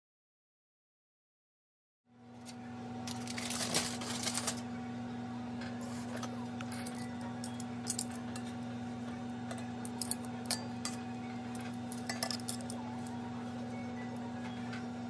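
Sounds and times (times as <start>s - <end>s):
steady hum: 2.1s - 15.0s
metal tongs clinking on skillet: 9.5s - 12.8s.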